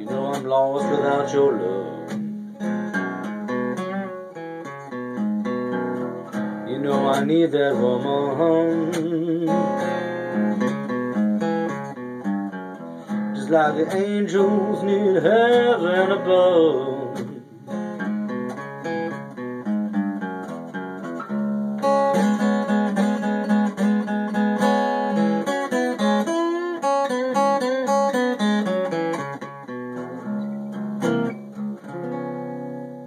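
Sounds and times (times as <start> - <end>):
acoustic guitar: 0.0 - 33.0.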